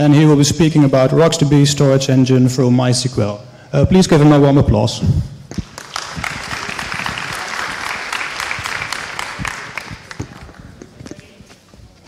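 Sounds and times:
audience applauding: 5.5s - 10.9s.

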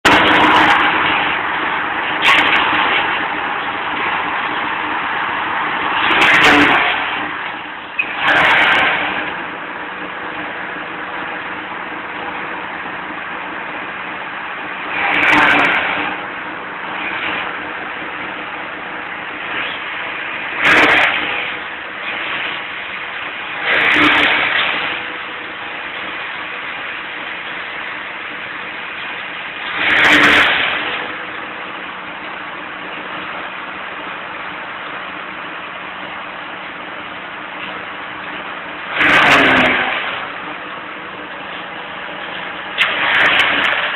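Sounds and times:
forage chopper running: 0.0s - 43.9s
surge of chopping: 5.7s - 9.4s, 14.8s - 16.2s, 19.4s - 25.2s, 29.2s - 31.2s, 38.8s - 40.4s, 42.8s - 43.9s.

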